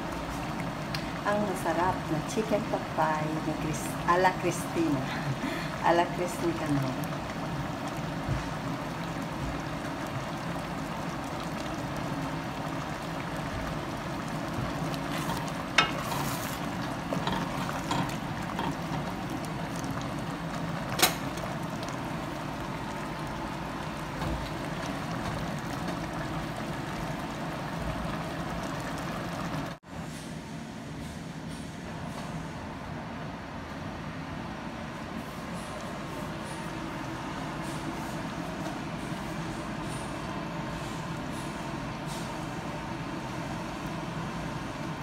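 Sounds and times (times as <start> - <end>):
stew bubbling in a pot: 0.0 - 29.8.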